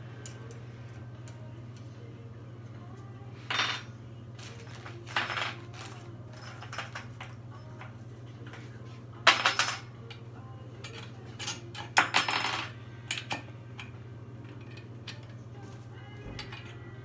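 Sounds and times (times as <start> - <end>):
metal parts clinking and rattling: 3.5 - 7.9.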